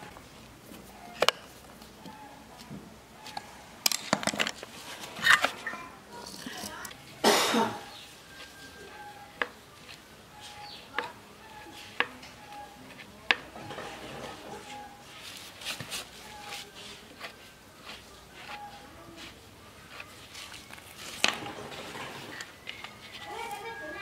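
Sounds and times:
metal scraping and rattling: 20.5s - 24.0s.

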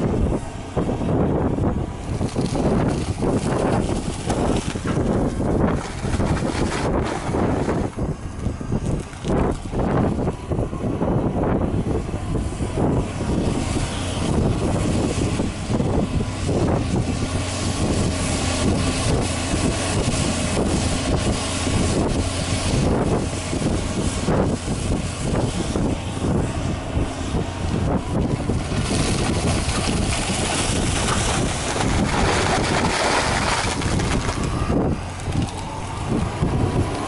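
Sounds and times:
excavator diesel engine running: 0.0s - 37.0s
wind buffeting microphone: 0.0s - 37.0s.

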